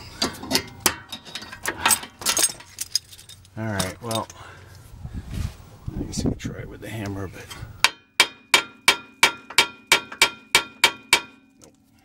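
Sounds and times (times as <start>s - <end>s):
hammer striking metal: 7.8s - 11.5s.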